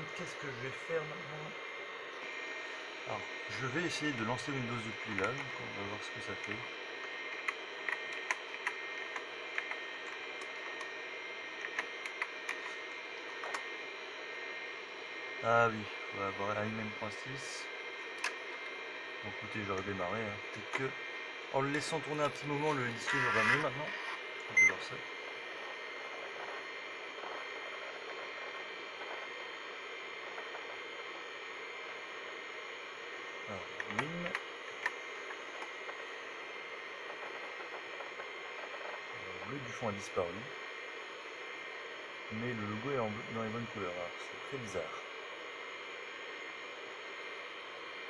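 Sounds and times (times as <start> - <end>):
computer hum: 0.0 - 48.0
faint high whine: 0.0 - 48.0
hard drive seek clicks: 3.5 - 13.7, 33.0 - 41.5.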